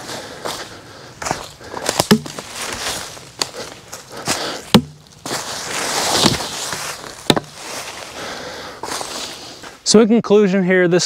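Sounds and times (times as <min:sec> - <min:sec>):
dry leaves rustling: 0:00.0 - 0:09.8
tool striking log: 0:02.0 - 0:02.5, 0:04.7 - 0:05.1, 0:06.2 - 0:06.5, 0:07.2 - 0:07.6.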